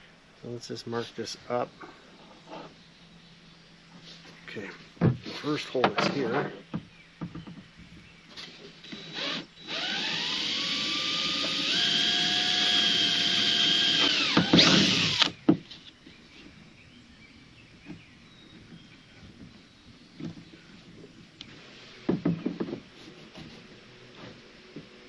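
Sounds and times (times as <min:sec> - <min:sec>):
cordless drill boring through plastic: 0:08.8 - 0:15.4.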